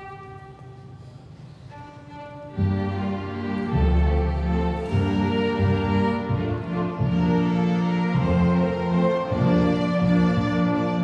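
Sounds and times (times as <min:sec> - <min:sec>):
slow string ensemble music: 0:00.0 - 0:11.0.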